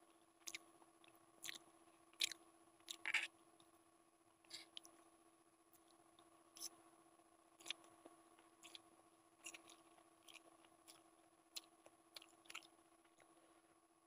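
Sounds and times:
faint steady hum: 0.0 - 14.0
person chewing noodles: 0.4 - 3.3, 7.6 - 13.4.

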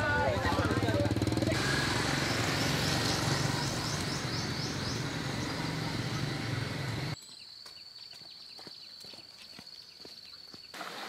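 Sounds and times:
small engine running: 0.0 - 7.2.

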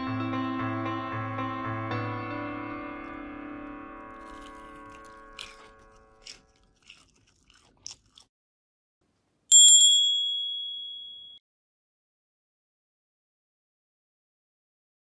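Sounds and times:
bright bell ding: 9.5 - 11.4.

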